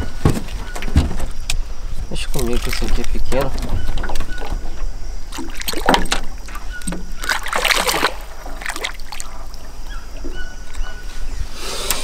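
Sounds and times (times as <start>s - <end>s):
fish thrashing and splashing water: 2.2s - 10.8s.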